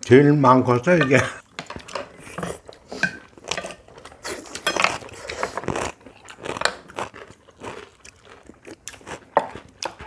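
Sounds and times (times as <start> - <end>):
people chewing: 1.4 - 10.0
cutlery and dishes clicking: 4.5 - 5.0.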